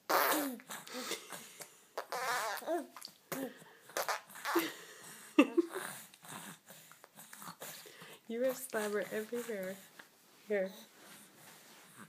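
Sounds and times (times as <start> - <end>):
baby blowing raspberries: 0.0 - 4.8
baby squealing coos: 2.0 - 3.0.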